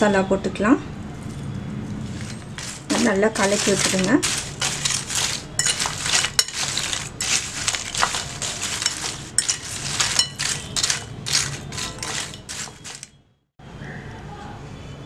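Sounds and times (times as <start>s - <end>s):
chips rattling and crunching: 2.1s - 13.1s
fork clinking on bowl: 3.8s - 13.1s.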